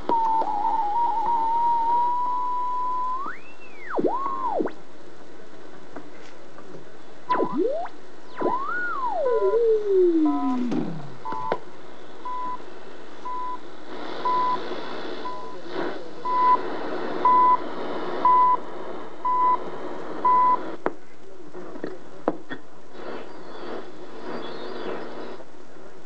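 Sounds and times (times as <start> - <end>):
radio static hiss: 0.0 - 26.0
short high beeps: 7.3 - 11.6.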